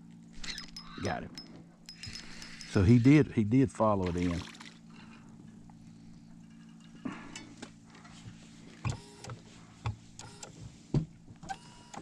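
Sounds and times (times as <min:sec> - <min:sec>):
faint steady hum: 0:00.0 - 0:12.0
short squeaky clicks: 0:00.4 - 0:01.1, 0:11.4 - 0:12.0.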